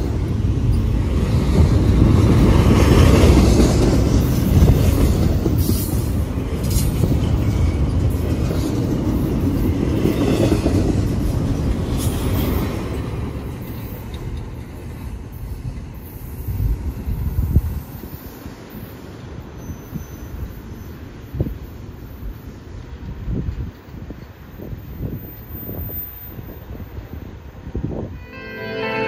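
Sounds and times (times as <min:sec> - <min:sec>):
train wheels rumbling on rails: 0:00.0 - 0:28.1
train wheel squeals: 0:05.4 - 0:08.2, 0:17.9 - 0:21.9.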